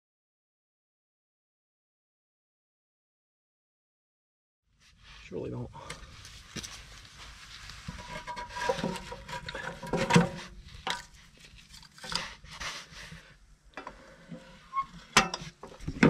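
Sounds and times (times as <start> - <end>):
logs scraping and knocking in stove: 7.6 - 16.0.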